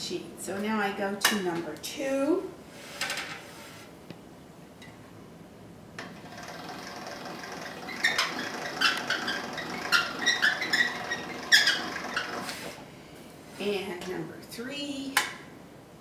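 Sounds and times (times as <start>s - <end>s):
pasta machine crank clicking: 6.0s - 12.7s.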